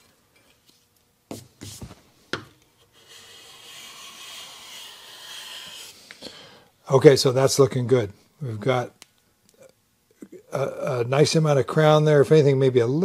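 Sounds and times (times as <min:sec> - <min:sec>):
bench plane shaving a board: 0:02.9 - 0:06.0.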